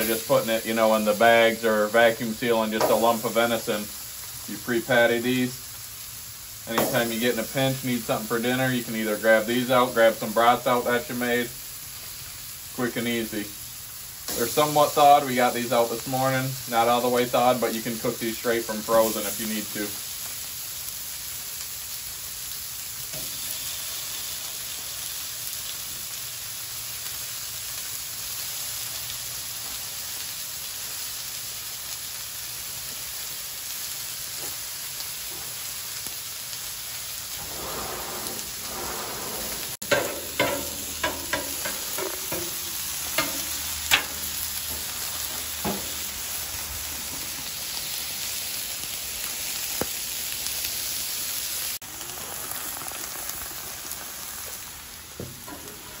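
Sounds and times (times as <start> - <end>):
food sizzling on a griddle: 0.0 - 56.0
metal spatula scraping griddle: 37.3 - 46.1, 55.4 - 56.0.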